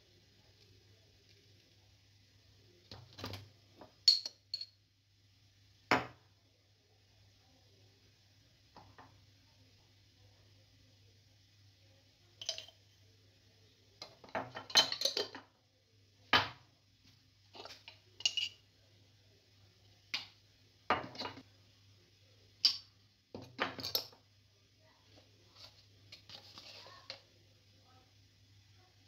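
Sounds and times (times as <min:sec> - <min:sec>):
metal teaspoon clinking: 0:04.0 - 0:04.8, 0:12.4 - 0:12.8, 0:17.6 - 0:18.6.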